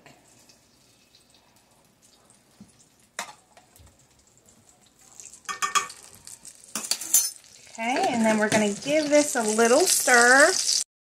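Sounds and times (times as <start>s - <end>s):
spoon clinking against glass: 6.7s - 7.4s.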